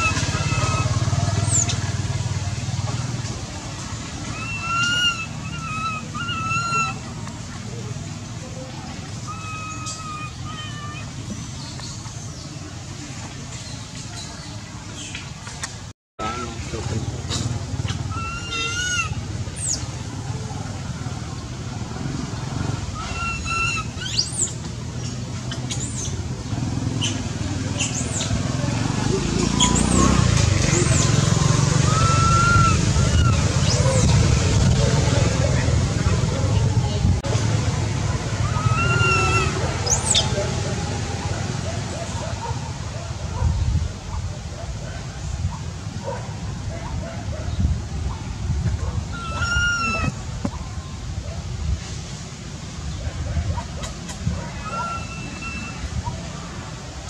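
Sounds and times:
baby monkey crying: 0.0 - 1.7, 4.3 - 7.0, 9.3 - 11.1, 18.0 - 19.8, 23.0 - 24.5, 31.9 - 34.1, 38.4 - 40.2
low engine rumble: 0.0 - 57.0.

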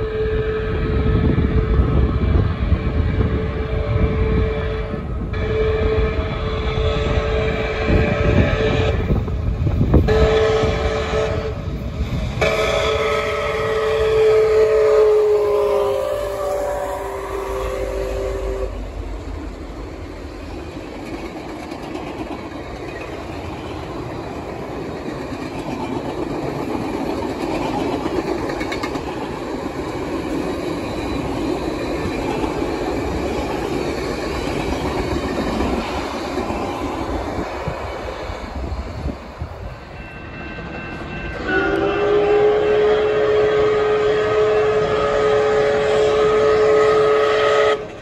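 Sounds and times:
steam locomotive whistle: 0.0 - 9.3, 9.9 - 11.8, 12.4 - 18.9, 39.8 - 48.0
train wheels rumbling on rail: 0.0 - 48.0.

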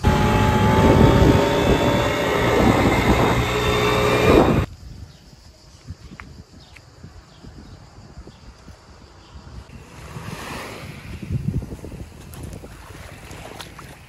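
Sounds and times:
moped engine running: 0.0 - 4.7
wind rushing over microphone: 0.0 - 14.0.

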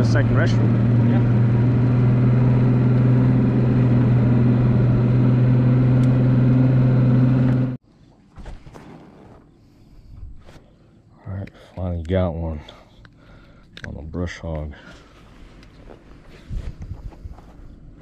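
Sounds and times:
outboard motor running: 0.0 - 7.8.

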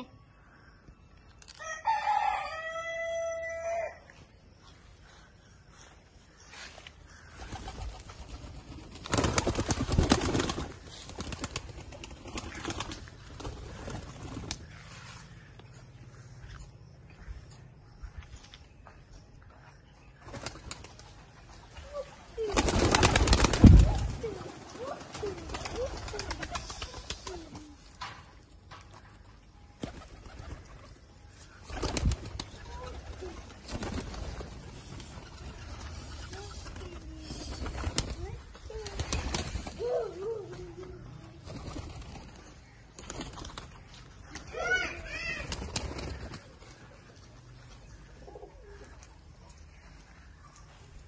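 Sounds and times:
pigeon wings flapping: 7.4 - 14.7, 22.4 - 27.8, 31.7 - 40.0, 41.4 - 44.5, 45.1 - 46.9
pigeons cooing: 31.7 - 42.5, 48.0 - 49.4.

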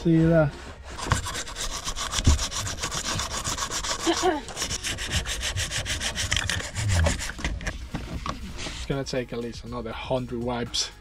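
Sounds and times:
wipe rubbing hard surfaces: 0.0 - 9.0.

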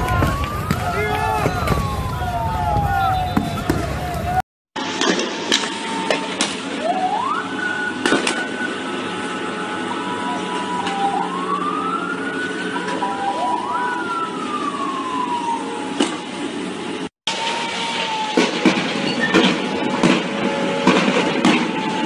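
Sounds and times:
street din: 0.0 - 6.8, 17.6 - 22.0
vehicle siren rising and falling: 0.0 - 22.0.

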